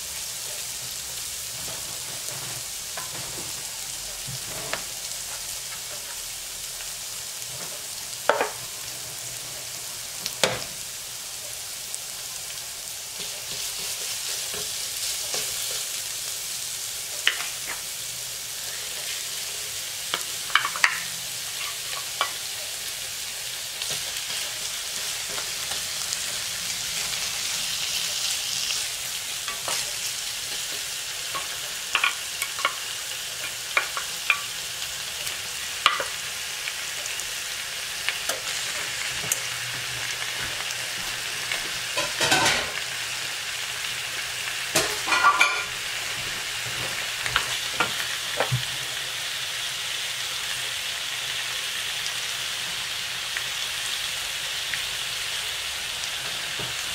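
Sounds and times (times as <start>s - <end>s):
meat sizzling in a pan: 0.0s - 56.9s.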